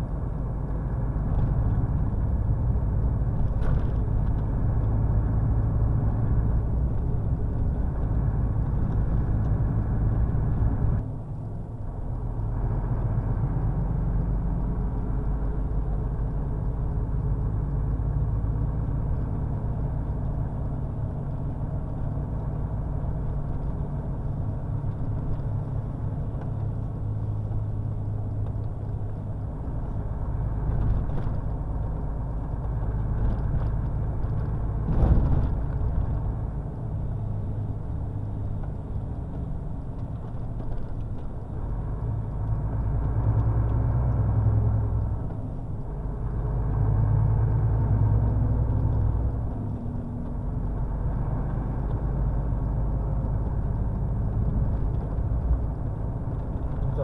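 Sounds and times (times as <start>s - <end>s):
road noise: 0.0s - 57.0s
truck engine drone: 0.0s - 57.0s
thump: 34.9s - 35.6s.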